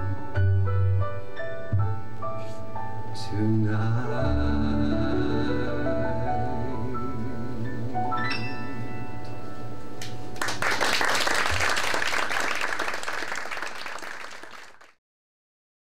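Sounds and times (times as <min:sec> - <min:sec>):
piano chords and run: 0:00.0 - 0:11.8
audience applause: 0:10.4 - 0:15.0.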